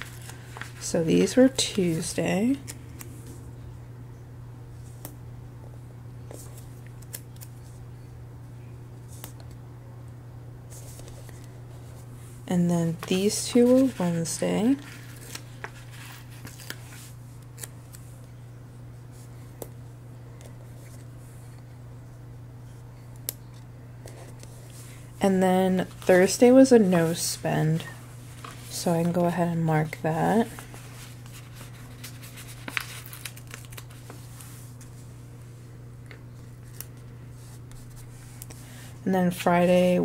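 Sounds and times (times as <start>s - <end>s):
paper crinkling: 0.0s - 3.2s, 12.9s - 18.0s, 25.7s - 35.1s
steady low hum: 0.0s - 40.0s
paper ticks and rustles: 30.4s - 34.5s.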